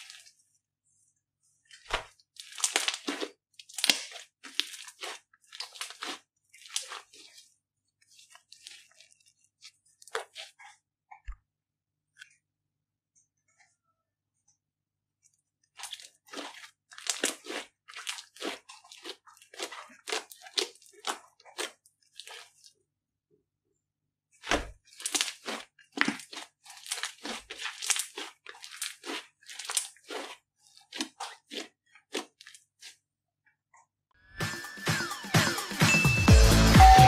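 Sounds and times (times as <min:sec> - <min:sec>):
slime crackling and popping: 0:01.8 - 0:07.4, 0:15.8 - 0:22.6, 0:24.9 - 0:32.9.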